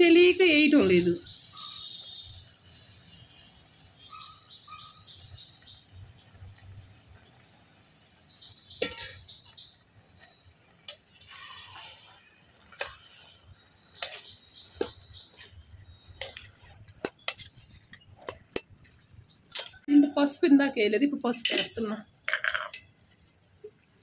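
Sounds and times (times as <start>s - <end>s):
small birds chirping: 0.0s - 24.0s
wet rustling of vegetables: 5.8s - 20.7s.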